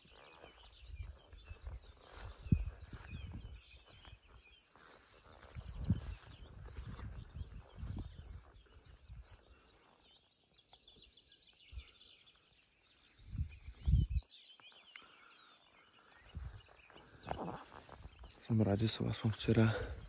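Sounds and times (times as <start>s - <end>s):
birds chirping: 0.0s - 20.0s.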